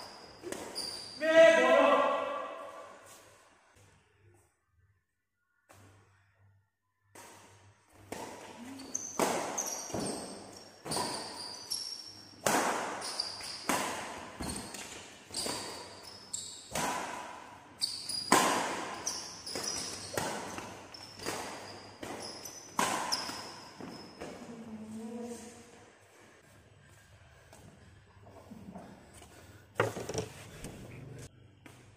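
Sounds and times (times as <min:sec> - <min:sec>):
rackets hitting shuttlecock: 0:07.1 - 0:24.4.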